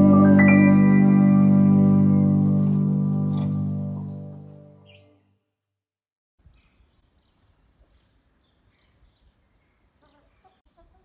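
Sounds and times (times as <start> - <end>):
faint barn ambience: 6.4 - 11.0.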